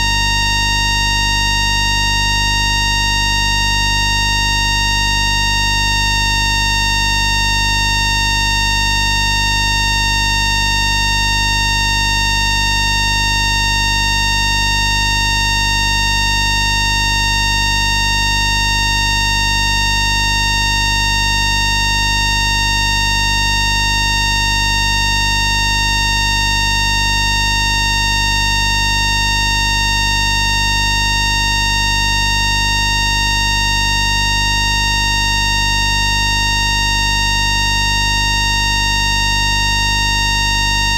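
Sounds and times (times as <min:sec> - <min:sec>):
steady electronic whine: 0:37.7 - 0:40.9.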